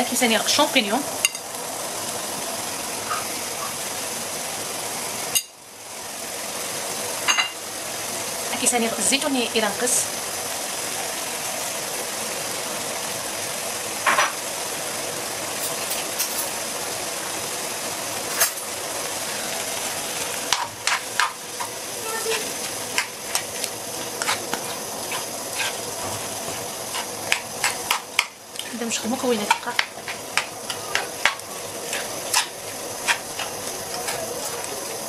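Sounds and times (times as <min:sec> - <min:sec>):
food sizzling in frying pan: 0:00.0 - 0:35.0
utensil scraping pan: 0:20.5 - 0:28.3, 0:29.0 - 0:34.7.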